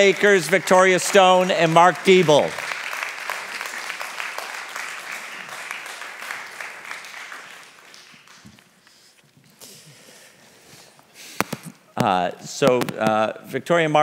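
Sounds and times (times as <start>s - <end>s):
audience applause: 0.0s - 8.6s.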